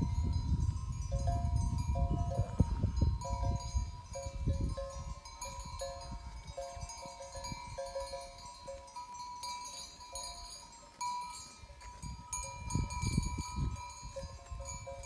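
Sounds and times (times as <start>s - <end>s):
wind rumble on microphone: 0.0s - 8.6s, 11.7s - 15.0s
sheep bells ringing: 0.0s - 15.0s.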